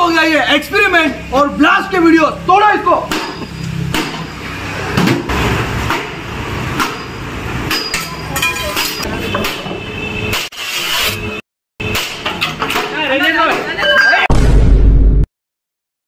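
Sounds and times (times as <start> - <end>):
metal pipe striking scooter: 3.1 - 4.2, 6.8 - 10.5.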